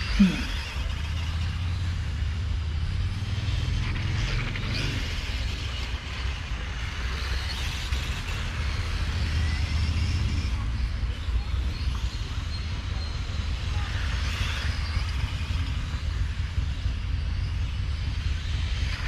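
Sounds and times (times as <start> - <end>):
steady low rumble: 0.0 - 7.4, 8.1 - 19.0
rc car motors whining: 0.0 - 19.0.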